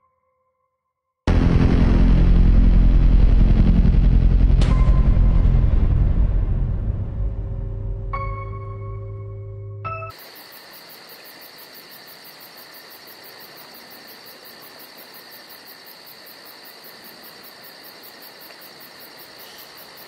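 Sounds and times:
crickets chirping: 8.2 - 20.0.

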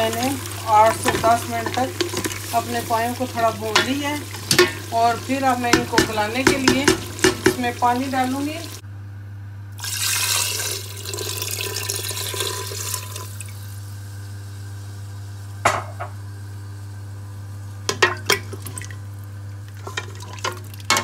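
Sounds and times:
wooden spoon stirring a pot: 0.0 - 8.8, 19.8 - 21.0
spoon knocking against a pot: 5.7 - 7.7
water poured into a pot: 9.8 - 13.7, 18.2 - 20.9.

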